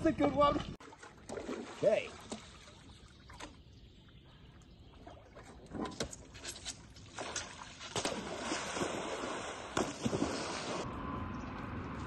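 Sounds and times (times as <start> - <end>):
water splashing: 0.0 - 4.2, 4.9 - 10.9
board slapping onto water: 7.1 - 10.8.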